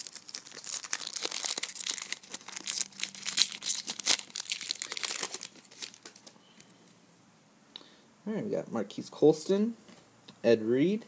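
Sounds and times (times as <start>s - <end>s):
foil wrapper crinkling: 0.0s - 6.4s.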